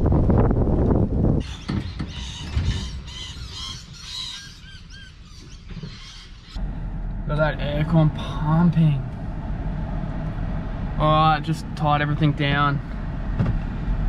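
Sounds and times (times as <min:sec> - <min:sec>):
vehicle wind and road rumble: 0:00.0 - 0:14.0
birds chirping: 0:01.4 - 0:06.7.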